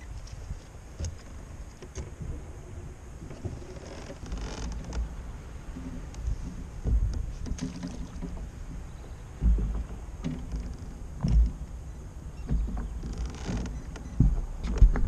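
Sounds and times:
steady low rumble: 0.0s - 7.5s
thumps and knocks on kayak hull: 3.2s - 11.7s, 12.4s - 15.0s.

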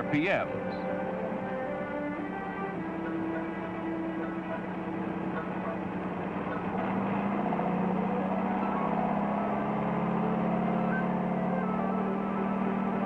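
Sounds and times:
engine running: 0.0s - 13.0s.

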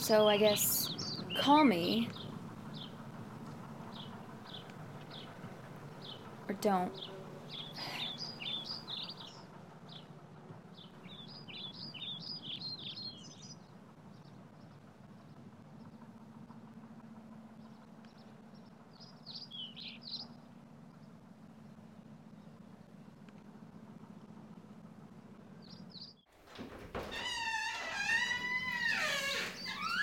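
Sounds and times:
small songbird chirping: 0.0s - 3.0s, 3.9s - 10.1s, 10.7s - 14.8s, 17.6s - 20.4s
faint low outdoor hum: 0.0s - 30.0s.

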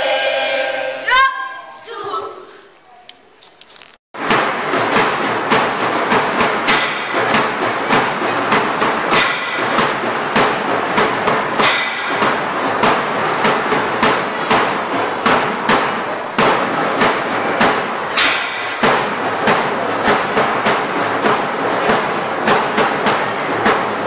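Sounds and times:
rhythmic knocking: 4.2s - 24.0s.

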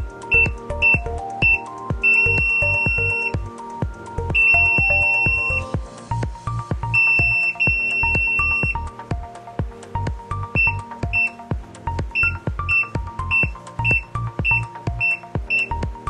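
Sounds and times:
background music with steady beat: 0.0s - 16.0s
keypad lock high beeps: 12.2s - 15.7s.

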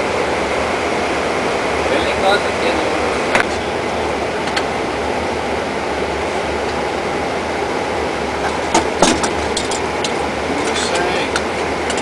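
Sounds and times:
airflow and ventilation rush: 0.0s - 12.0s.

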